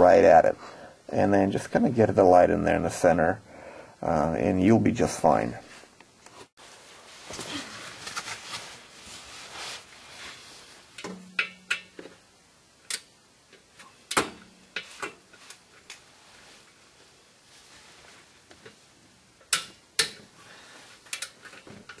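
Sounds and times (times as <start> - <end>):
soft rustling: 5.6 - 11.0, 14.9 - 19.0.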